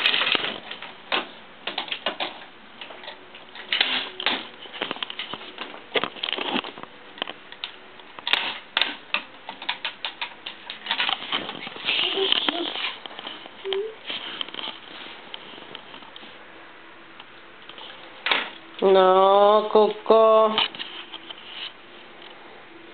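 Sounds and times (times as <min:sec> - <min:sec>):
plastic toys clacking on crib rail: 0:00.0 - 0:05.3.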